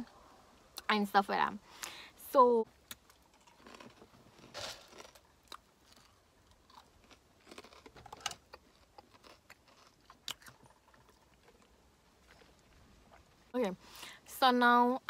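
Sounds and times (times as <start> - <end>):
person chewing: 2.8 - 13.5.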